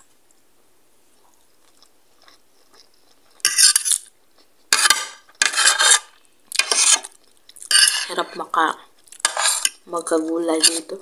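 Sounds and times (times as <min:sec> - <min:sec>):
cutlery scraping a plate: 0:03.3 - 0:04.0, 0:04.7 - 0:08.4, 0:09.2 - 0:09.8, 0:10.4 - 0:11.0.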